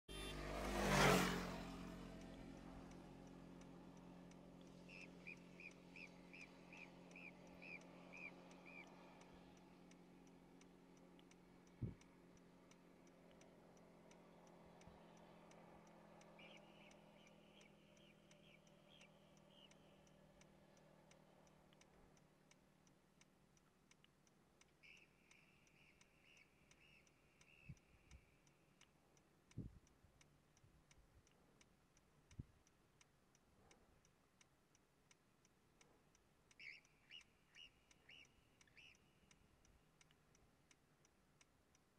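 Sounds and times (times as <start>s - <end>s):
faint even ticking: 0.1s - 41.9s
marmot chirping calls: 4.9s - 8.9s, 16.3s - 20.0s, 24.6s - 28.4s, 36.5s - 39.3s.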